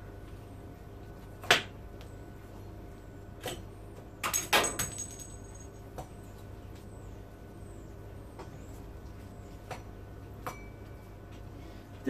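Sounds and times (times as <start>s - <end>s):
high metallic ring: 10.5s - 11.0s.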